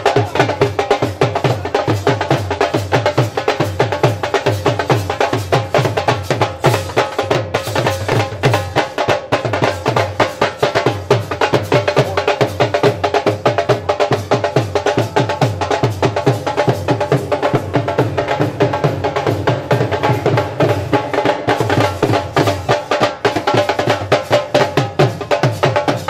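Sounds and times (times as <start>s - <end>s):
drums beating fast rhythm: 0.0s - 26.0s.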